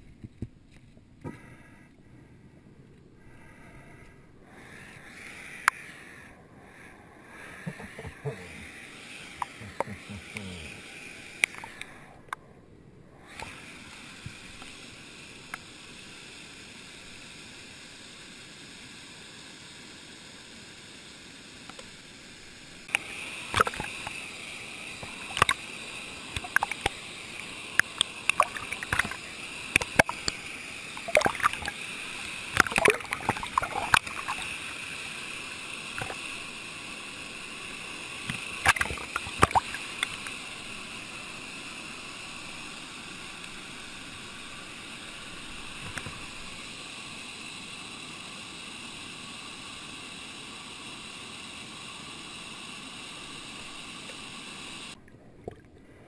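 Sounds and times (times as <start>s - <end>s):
sharp clicks and crackles: 11.4s - 12.4s, 25.0s - 25.7s, 26.3s - 30.4s, 36.0s - 36.4s, 45.7s - 46.5s
stream water rushing: 22.8s - 46.8s.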